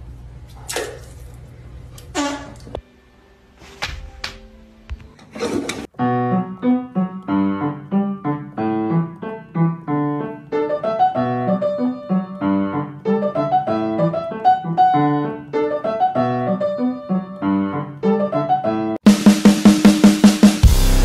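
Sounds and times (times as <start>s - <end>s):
piano music: 2.8s - 19.1s.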